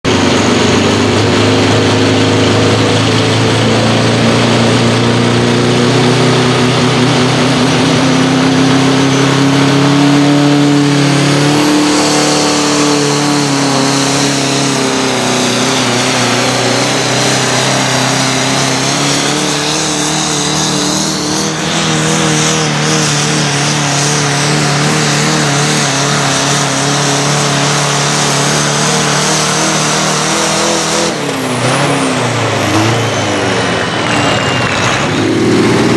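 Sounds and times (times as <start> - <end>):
tractor diesel engine at full throttle: 0.0 - 35.9.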